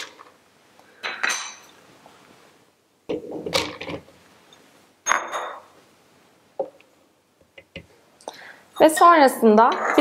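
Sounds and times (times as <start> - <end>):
dish clinking on counter: 5.1 - 5.7.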